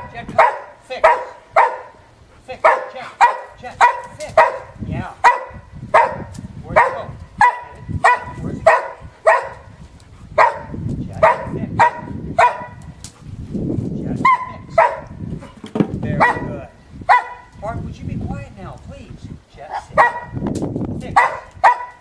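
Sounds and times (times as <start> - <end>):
dog barking: 0.0 - 2.0, 2.6 - 9.7, 10.4 - 12.8, 14.2 - 15.2, 16.2 - 16.5, 17.1 - 17.5, 19.7 - 20.4, 21.2 - 22.0.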